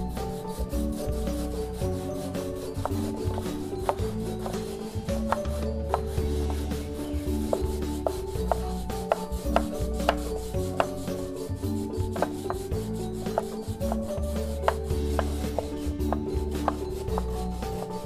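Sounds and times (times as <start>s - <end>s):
coconut rasping on metal grater: 0.0s - 11.5s, 12.1s - 18.0s
knife chopping on wooden board: 7.5s - 11.1s.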